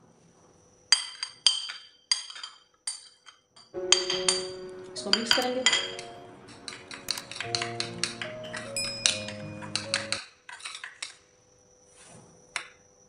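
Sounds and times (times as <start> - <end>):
background music sustained tones: 3.8 - 10.2.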